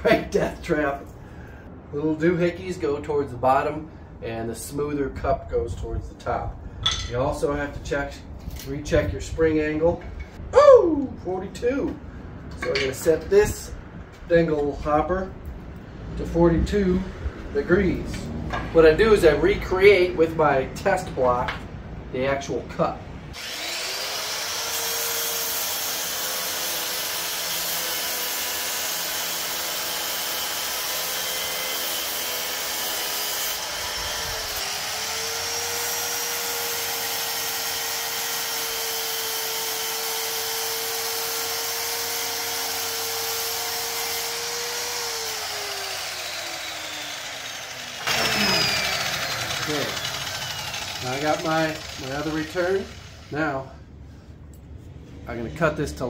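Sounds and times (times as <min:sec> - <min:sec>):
miter saw whining: 0:23.4 - 0:53.7.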